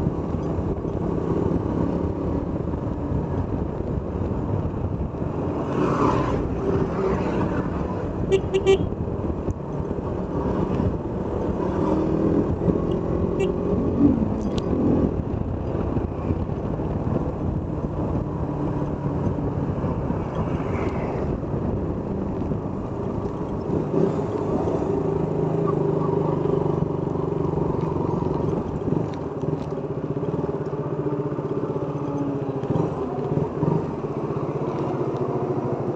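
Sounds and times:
road and wind noise: 0.0 - 35.9
motorcycle engine running: 21.4 - 35.9.

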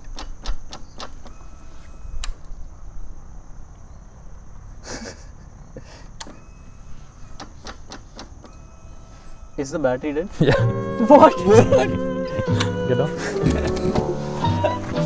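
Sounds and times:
motorcycle starter clicking: 0.0 - 2.6, 6.2 - 10.2, 12.4 - 14.2.

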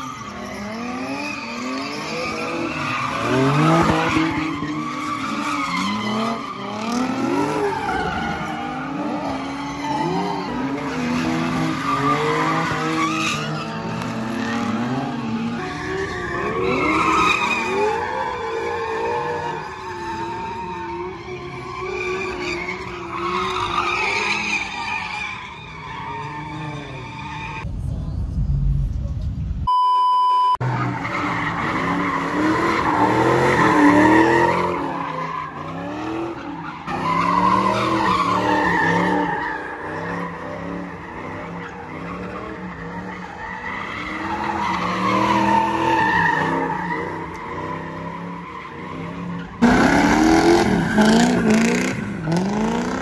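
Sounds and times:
tires squealing: 0.0 - 27.7, 30.6 - 53.0
car engines revving: 0.0 - 29.0, 30.6 - 53.0
electronic beep: 29.7 - 30.6.

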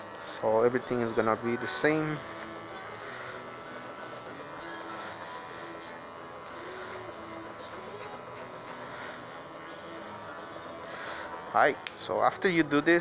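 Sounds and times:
electric hair clippers buzzing: 0.0 - 13.0.

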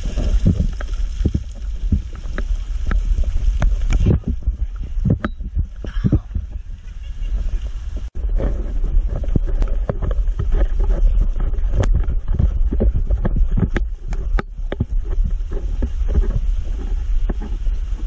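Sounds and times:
pops and crackles: 0.0 - 6.3, 8.4 - 16.4.

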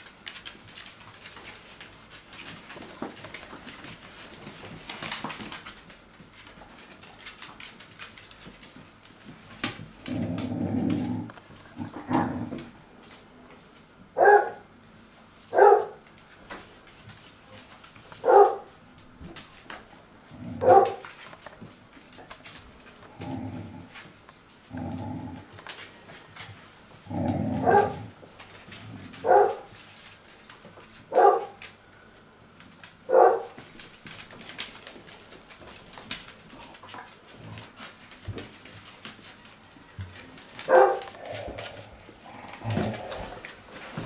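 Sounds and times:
claws clicking on tile floor: 0.0 - 13.2, 16.0 - 31.8, 32.5 - 44.0
puppies barking: 29.2 - 29.7, 31.1 - 31.6, 33.1 - 33.6, 40.7 - 41.1.

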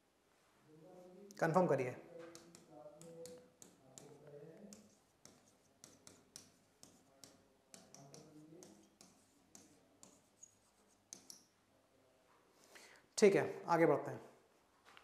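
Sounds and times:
pen tapping on a board: 2.2 - 11.5.

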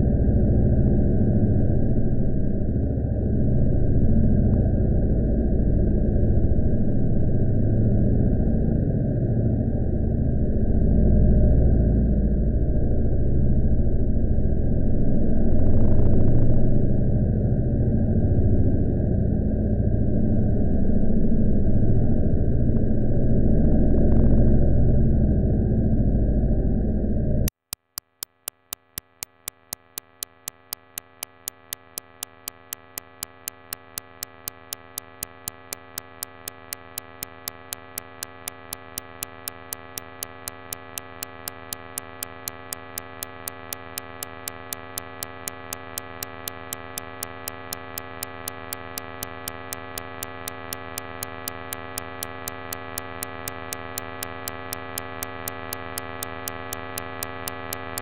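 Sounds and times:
steady ticking: 27.5 - 58.0
electronic drone: 28.4 - 58.0.

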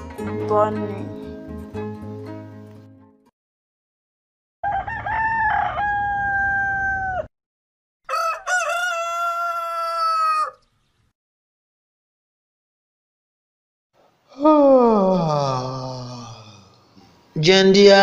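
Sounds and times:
rooster crowing: 4.6 - 7.3, 8.1 - 10.6.

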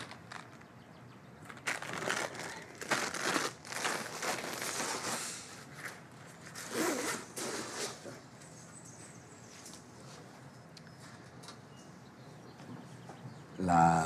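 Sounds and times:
plastic packages crinkling: 0.0 - 0.8, 1.4 - 6.0
bag being handled: 1.5 - 5.2.

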